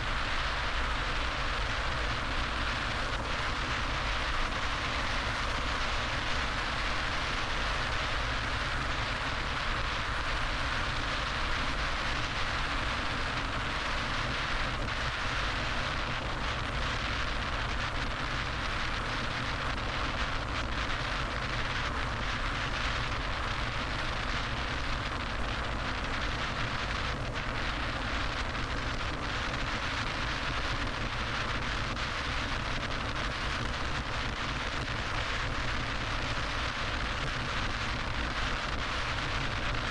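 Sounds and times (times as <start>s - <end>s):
car road and wind noise: 0.0s - 39.9s.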